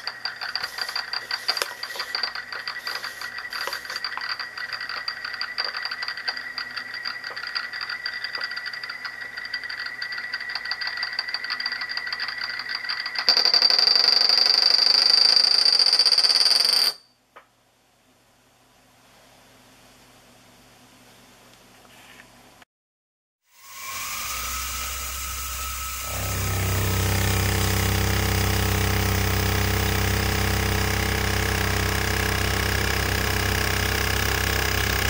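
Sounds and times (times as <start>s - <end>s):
spinning disc whirring on glass: 0.0s - 14.4s, 23.5s - 35.0s.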